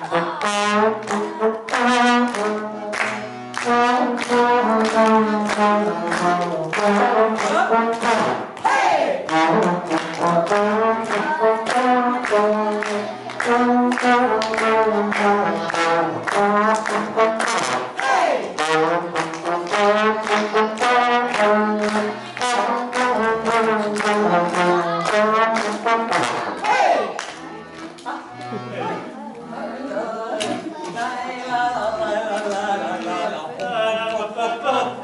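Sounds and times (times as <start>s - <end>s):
trombone playing: 0.0s - 8.5s, 9.2s - 27.0s
accordion playing: 0.0s - 8.6s, 9.2s - 30.8s.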